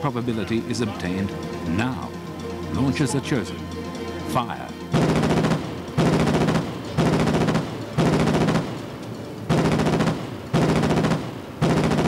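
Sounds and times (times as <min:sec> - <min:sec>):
grenade launchers firing rapid bursts: 0:05.0 - 0:08.8, 0:09.5 - 0:12.0.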